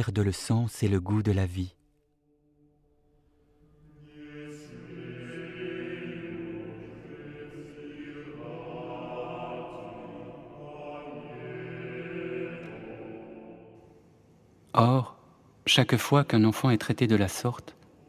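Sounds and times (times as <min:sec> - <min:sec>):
chanted voices music: 0:03.6 - 0:14.0.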